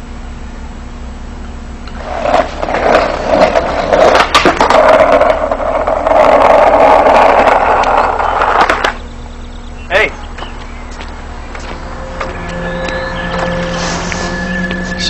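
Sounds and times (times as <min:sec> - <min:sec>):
skateboard wheels rolling on pavement: 0:01.8 - 0:15.0
skateboard clacks: 0:02.0 - 0:09.0.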